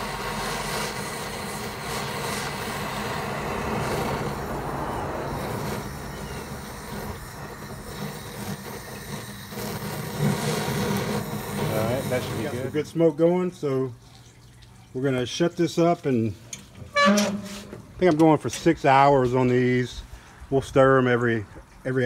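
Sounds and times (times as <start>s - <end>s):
torch lighter flame hissing: 0.0s - 12.8s.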